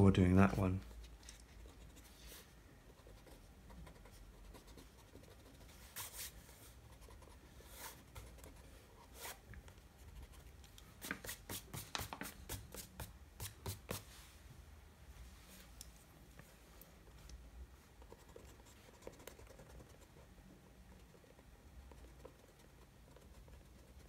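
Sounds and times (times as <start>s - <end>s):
pencil scratching on paper: 0.9s - 9.4s, 18.0s - 20.3s, 20.9s - 24.0s.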